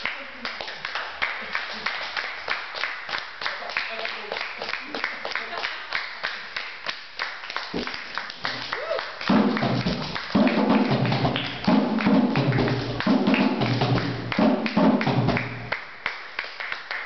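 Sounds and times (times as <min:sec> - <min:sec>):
hand drums in fast rhythm: 0:09.3 - 0:15.7.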